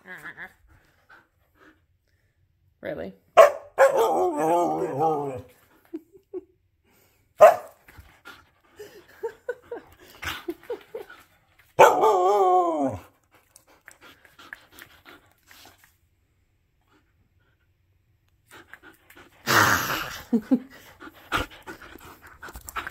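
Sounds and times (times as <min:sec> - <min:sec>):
dog barking: 0:03.4 - 0:04.9, 0:07.4 - 0:07.8, 0:11.8 - 0:12.2
dog long wavering yell: 0:03.9 - 0:05.5, 0:11.8 - 0:13.1
dog grumbling: 0:19.4 - 0:20.4.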